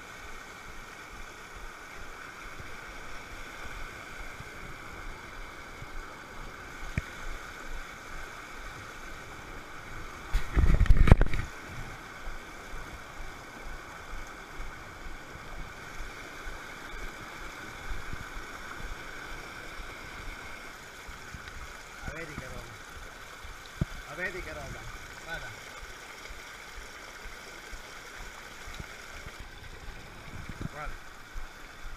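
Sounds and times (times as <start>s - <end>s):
stream rushing over boulders: 0.0s - 31.9s.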